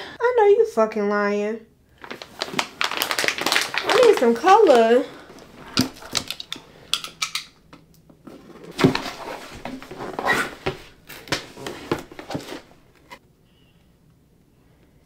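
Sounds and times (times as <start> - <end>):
paper rustling: 2.0 - 6.6, 8.3 - 13.2
cardboard box knocks and scrapes: 8.3 - 10.8.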